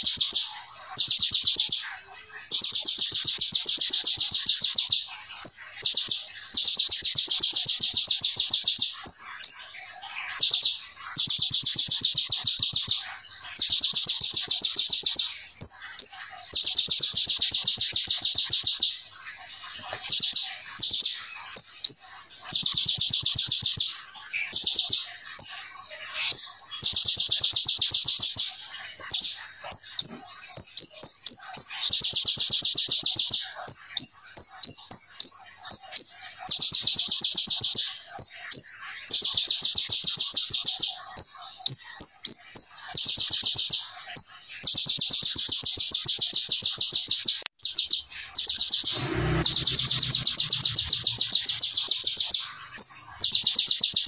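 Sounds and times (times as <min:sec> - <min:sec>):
sunbird singing buzzing trills: 0:47.6 - 0:54.0.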